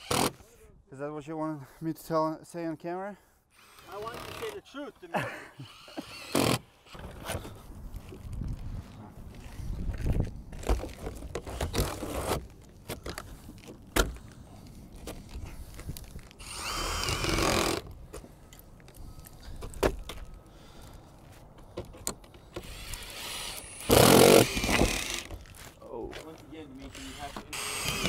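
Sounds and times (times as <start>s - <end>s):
cordless drill running: 16.4s - 17.8s, 22.6s - 25.3s, 26.9s - 28.0s.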